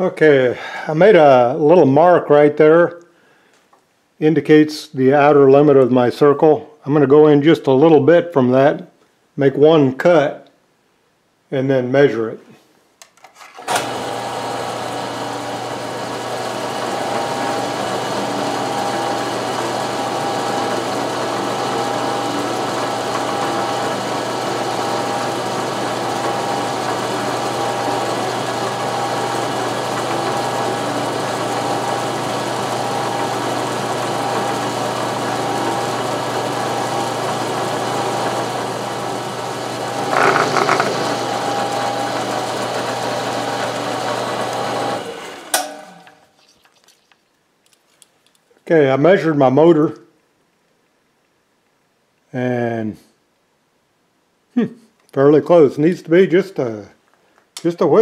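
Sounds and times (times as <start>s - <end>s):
milling machine cutting metal: 13.6s - 46.2s.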